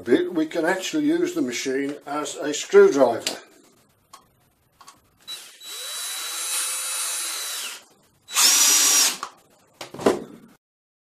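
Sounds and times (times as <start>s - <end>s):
drill motor whine: 5.2s - 9.3s.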